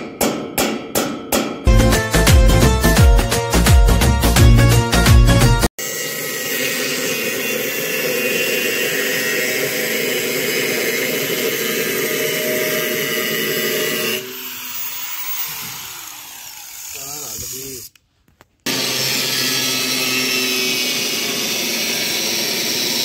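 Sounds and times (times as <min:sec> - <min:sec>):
angle grinder grinding steel: 0:05.8 - 0:18.0, 0:18.7 - 0:23.0.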